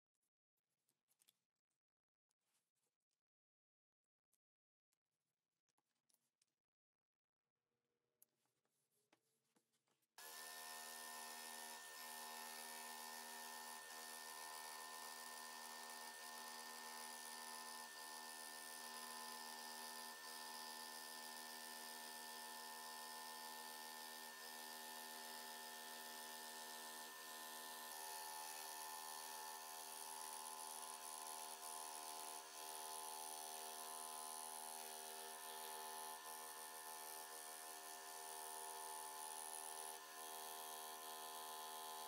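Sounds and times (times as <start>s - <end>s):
scroll saw cutting wood: 10.2s - 42.0s.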